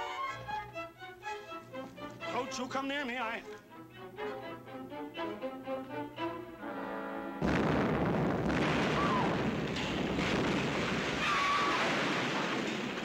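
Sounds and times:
held orchestral notes: 0.0 - 7.4
explosion: 7.4 - 13.0.

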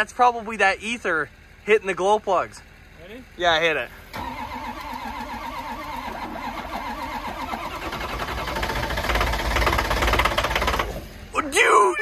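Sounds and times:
diesel engine starter cranking: 4.0 - 11.3.

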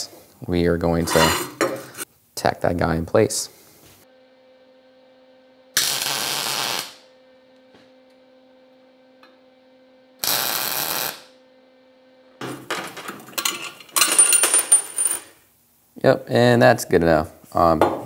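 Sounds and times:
low steady hum: 0.1 - 16.6
welder tack welding: 5.8 - 7.0, 10.2 - 11.3.

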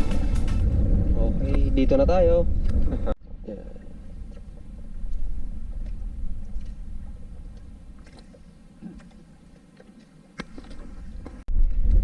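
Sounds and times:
boat engine rumble: 0.0 - 11.6.

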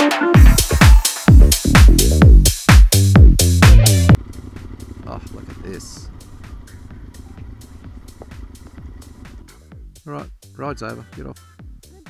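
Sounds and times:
electronic dance music: 0.0 - 4.2
motorcycle engine rumble: 3.2 - 10.0.

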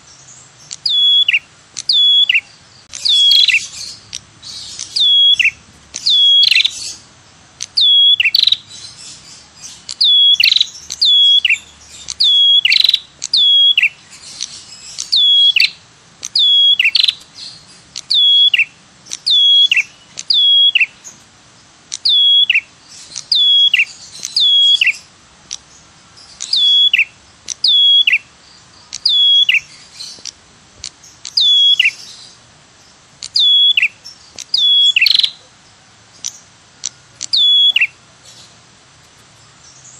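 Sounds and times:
bird call with sharp falling notes: 0.8 - 7.0, 7.8 - 8.6, 37.3 - 38.0.

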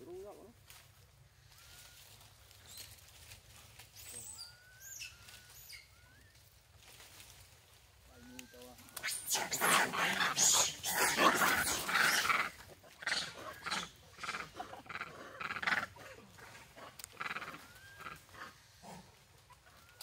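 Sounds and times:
macaques giving bark-like calls: 4.3 - 6.0, 8.8 - 20.0.

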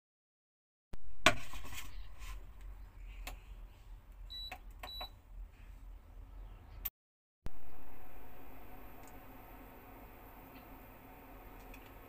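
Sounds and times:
low steady hum: 7.5 - 12.0.

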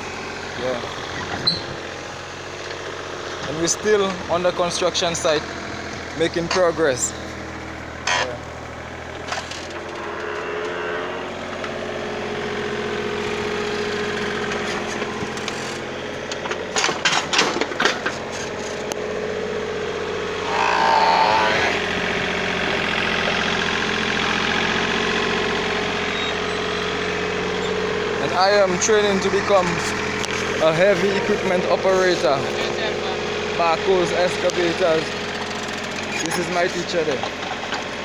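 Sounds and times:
excavator engine running: 0.0 - 38.0
high whine: 20.3 - 22.8.

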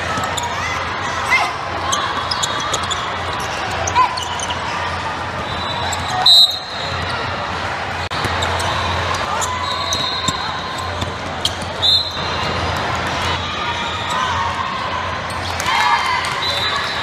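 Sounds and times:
sneakers squeaking: 0.0 - 14.6.

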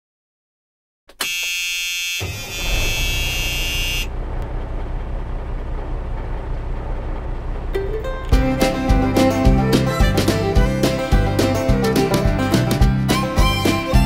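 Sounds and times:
loud buzzing horn tone: 1.1 - 4.2
low uneven rumbling: 4.1 - 12.6.

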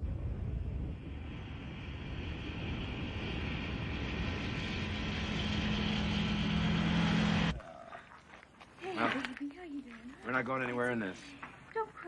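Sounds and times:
steady low drone: 0.0 - 7.7
truck engine and road rumble: 0.1 - 7.6.

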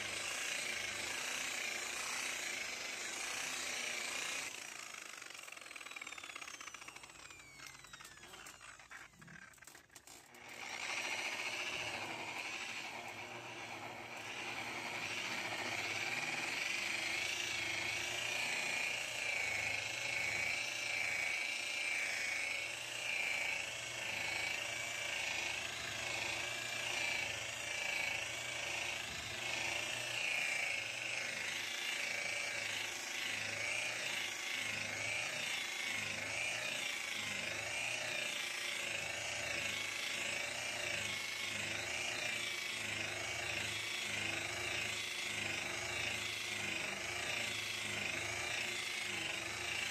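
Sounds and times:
rotary polisher whining: 0.0 - 49.9.

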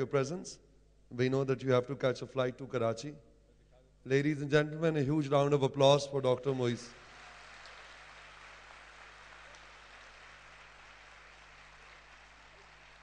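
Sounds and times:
audience applause: 7.0 - 13.0.

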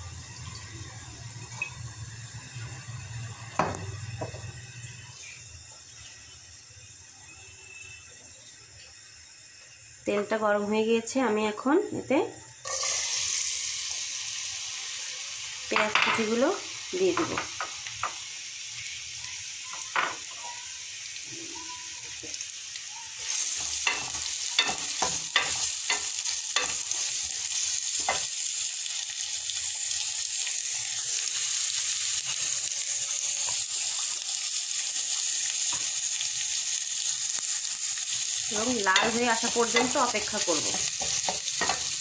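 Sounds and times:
onions sizzling in oil: 0.0 - 42.0
spatula knocking and scraping pan: 23.8 - 26.9, 38.9 - 42.0.

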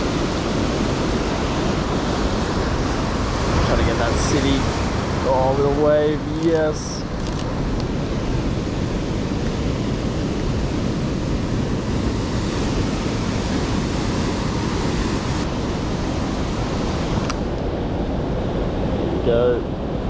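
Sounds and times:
heavy surf breaking: 0.0 - 20.0
wind on microphone: 0.0 - 20.0.

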